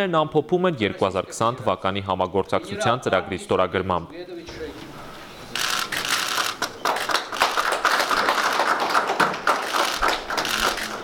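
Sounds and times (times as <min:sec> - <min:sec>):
camera shutters clicking: 0:05.6 - 0:07.7, 0:09.6 - 0:11.0.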